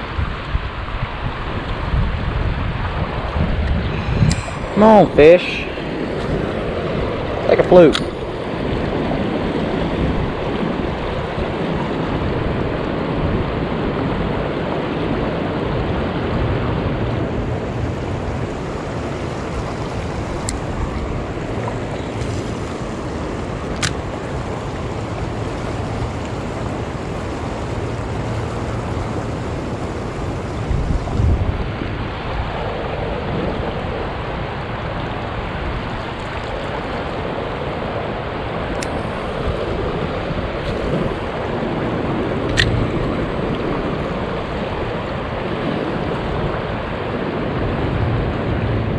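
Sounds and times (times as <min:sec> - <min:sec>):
river current rushing: 0:00.0 - 0:48.9
wind buffeting microphone: 0:00.0 - 0:48.9.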